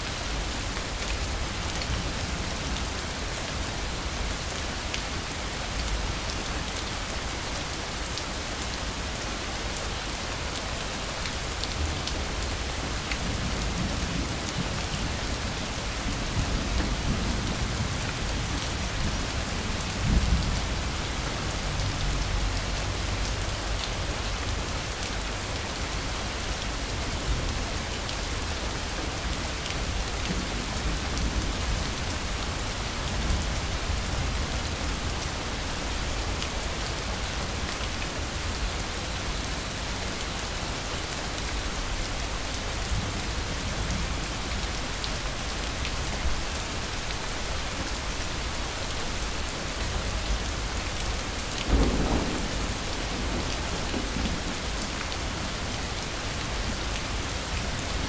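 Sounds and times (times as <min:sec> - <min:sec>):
steady rain falling: 0:00.0 - 0:58.0
low rumble of thunder: 0:51.7 - 0:55.7.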